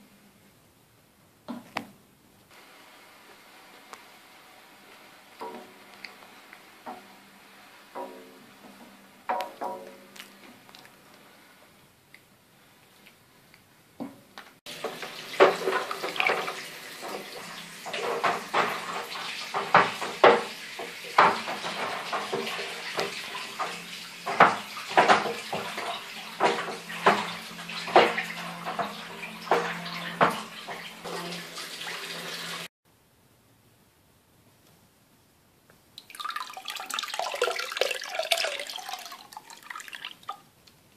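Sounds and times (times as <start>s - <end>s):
sharp knocks: 8.0s - 10.1s
liquid sloshing and splashing: 14.7s - 32.7s, 36.0s - 40.5s.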